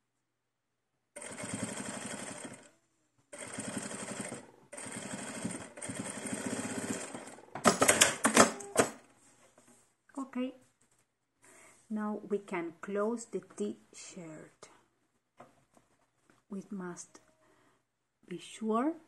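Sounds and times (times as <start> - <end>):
sewing machine stitching: 1.2 - 2.7, 3.4 - 9.0.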